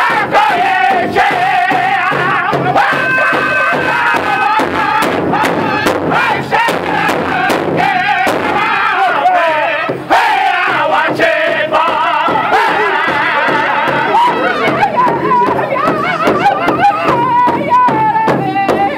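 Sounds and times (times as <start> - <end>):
large hide drum beating: 0.0 - 18.9
men singing together: 0.0 - 18.9.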